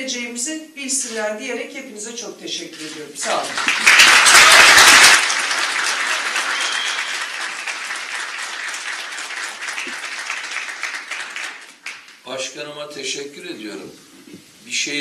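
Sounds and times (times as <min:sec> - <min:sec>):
audience applause: 0:03.2 - 0:12.2.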